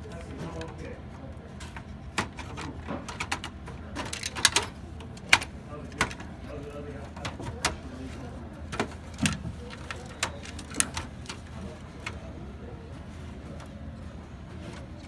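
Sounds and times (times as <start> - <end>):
computer parts clicking and knocking: 1.6 - 8.0, 8.6 - 12.3.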